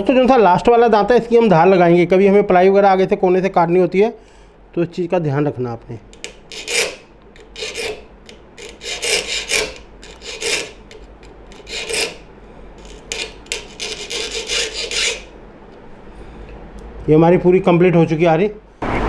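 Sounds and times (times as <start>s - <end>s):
file rasping on saw teeth: 6.2s - 12.2s, 12.8s - 15.3s.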